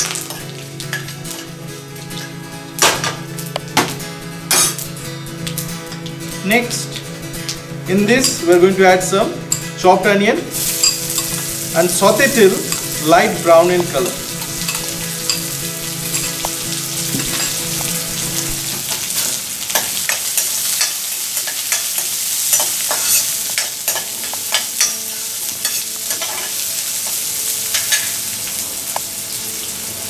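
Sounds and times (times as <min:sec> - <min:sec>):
onions sizzling in hot oil: 0:00.0 - 0:03.7, 0:10.4 - 0:30.0
spoon scraping a pan: 0:14.3 - 0:18.5, 0:20.0 - 0:26.6.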